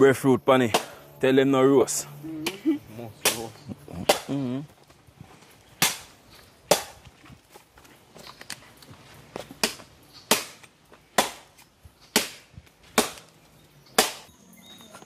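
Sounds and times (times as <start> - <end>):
wood being chopped: 0.7 - 1.0, 3.2 - 4.4, 5.8 - 7.2, 9.6 - 14.3.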